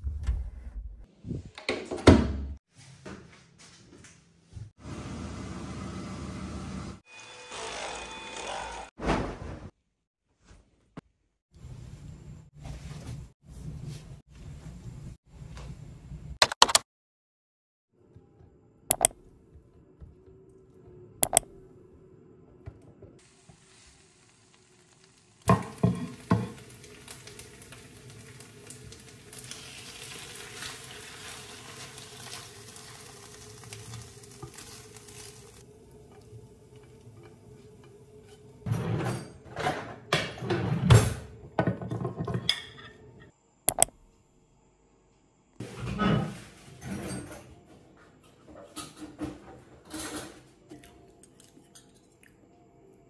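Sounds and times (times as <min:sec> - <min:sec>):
sharp clicks: 0:16.4 - 0:16.8, 0:18.9 - 0:19.3, 0:21.2 - 0:21.6, 0:43.7 - 0:44.1
food sizzling in a pan: 0:23.2 - 0:38.4.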